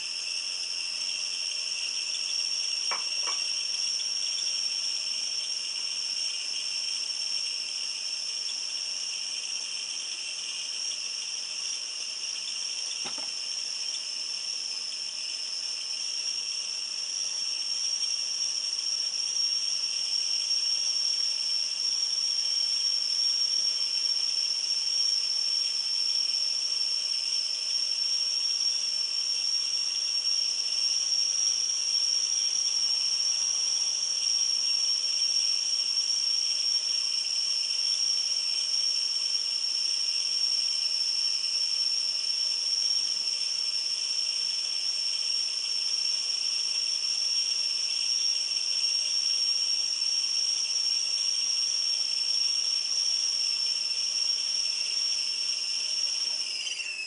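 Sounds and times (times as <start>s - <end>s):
steam hissing: 0.0s - 9.3s
kettle whistling: 0.0s - 57.0s.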